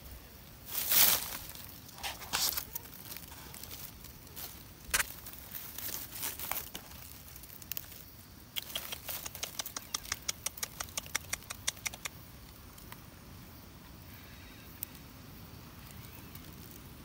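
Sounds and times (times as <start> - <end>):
light sharp clicks: 8.5 - 12.2.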